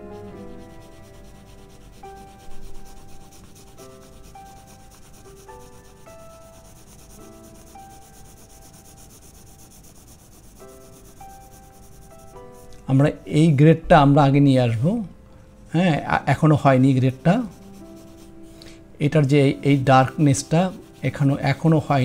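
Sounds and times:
pencil shading on paper: 0.0s - 12.8s, 16.8s - 18.6s, 19.2s - 22.0s
quiet background music: 0.0s - 22.0s.

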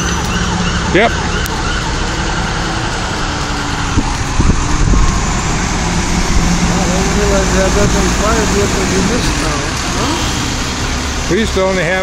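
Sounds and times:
siren: 0.0s - 8.4s
fire engine rumble: 0.0s - 12.0s.

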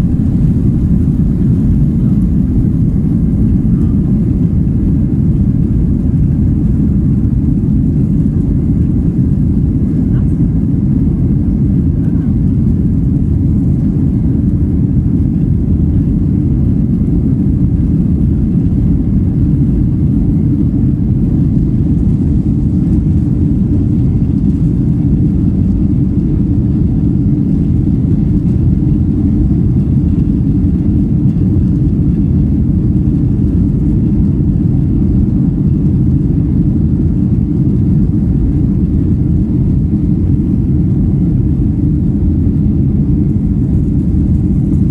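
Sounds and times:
rushing air: 0.0s - 5.0s
jet engines rumbling: 0.0s - 44.9s.

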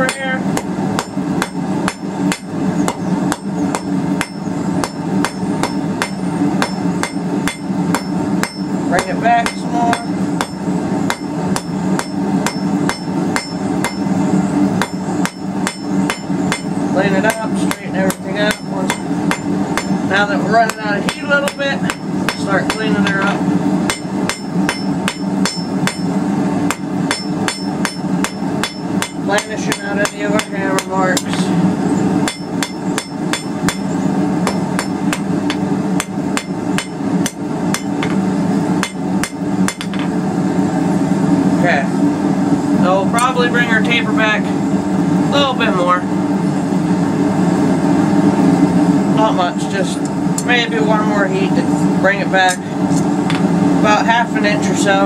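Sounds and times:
low hum: 0.0s - 55.0s
hammer striking steel on anvil: 0.1s - 14.1s, 14.8s - 20.0s, 20.6s - 26.1s, 26.7s - 31.5s, 32.2s - 38.2s, 38.8s - 40.1s.

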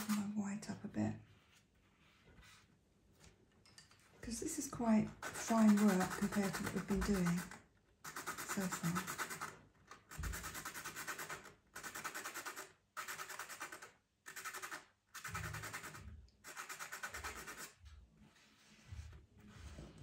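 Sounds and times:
pencil being sharpened: 5.1s - 9.6s, 10.3s - 17.8s.

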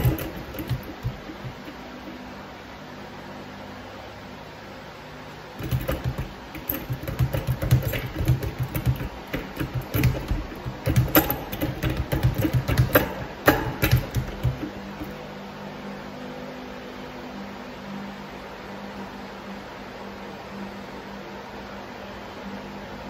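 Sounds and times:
speed bag rattling on platform: 0.0s - 2.1s, 5.6s - 15.2s.

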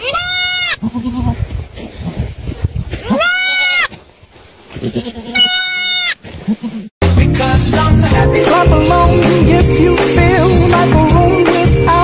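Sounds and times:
goat screaming: 0.0s - 1.4s, 3.0s - 4.0s, 4.8s - 6.9s.

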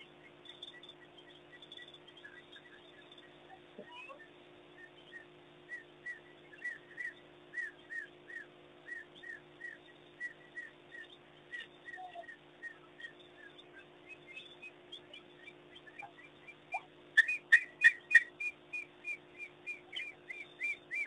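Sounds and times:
high whistle-like chirping calls: 0.0s - 21.0s
steady low hum: 0.0s - 21.0s.

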